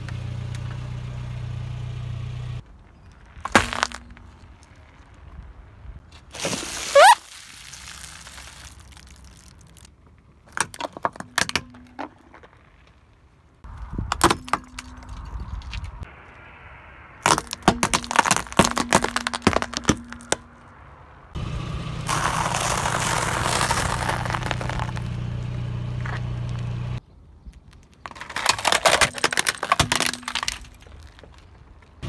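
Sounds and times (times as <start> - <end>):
car engine humming: 0.0 - 2.6, 19.2 - 27.0
walnut shells cracking under tyre: 2.9 - 5.2, 6.4 - 16.1, 17.2 - 20.6, 22.1 - 25.2, 27.4 - 32.0.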